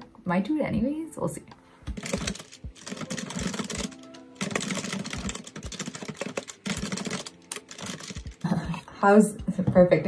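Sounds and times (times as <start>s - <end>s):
soft background music: 0.0s - 10.0s
fast typing on keyboard: 1.9s - 8.7s.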